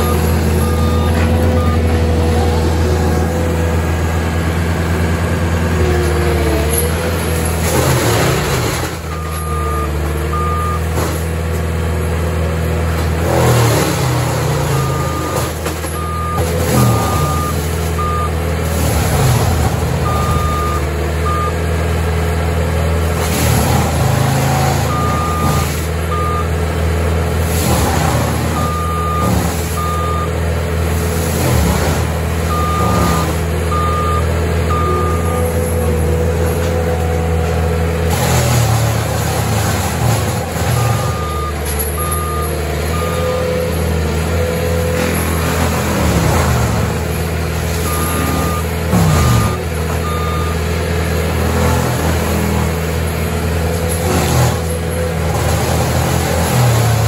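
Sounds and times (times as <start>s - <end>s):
reverse alarm beeping: 0.0s - 2.0s, 9.2s - 10.9s, 14.7s - 18.4s, 20.0s - 21.6s, 28.6s - 30.3s, 32.5s - 35.6s, 40.8s - 43.5s, 47.9s - 50.6s
diesel engine running: 0.0s - 57.0s.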